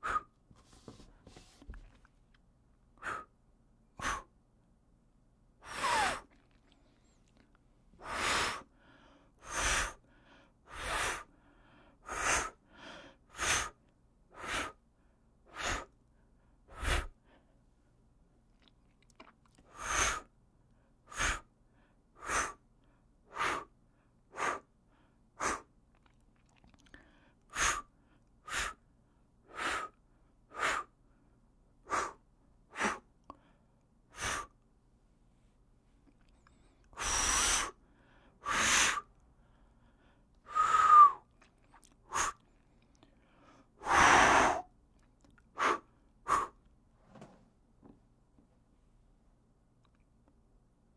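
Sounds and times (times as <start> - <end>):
man blowing puffs of air: 0.0 - 1.6, 3.0 - 3.4, 4.0 - 4.4, 5.6 - 6.4, 8.0 - 8.7, 9.4 - 10.0, 10.7 - 11.3, 12.0 - 14.8, 15.5 - 16.0, 16.7 - 17.2, 19.7 - 20.3, 22.2 - 22.6, 23.3 - 23.7, 24.3 - 24.7, 25.4 - 25.7, 27.5 - 28.8, 29.5 - 31.0, 31.8 - 33.1, 34.1 - 34.6, 36.9 - 39.1, 40.5 - 41.2, 42.1 - 42.4, 43.8 - 44.7, 45.6 - 46.6.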